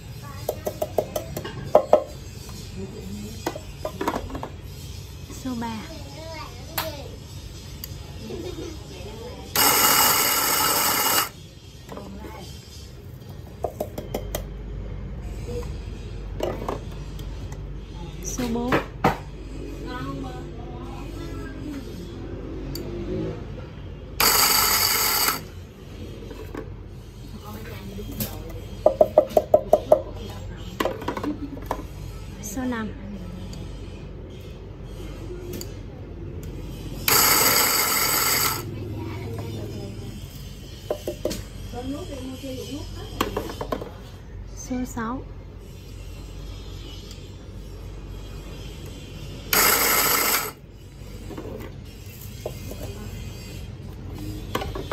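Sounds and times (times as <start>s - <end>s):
motor hum: 9.5s - 11.8s, 23.9s - 25.6s, 36.7s - 40.0s, 48.3s - 50.9s
coffee grinder grinding beans: 9.6s - 11.4s, 24.2s - 25.5s, 37.1s - 38.7s, 49.5s - 50.6s.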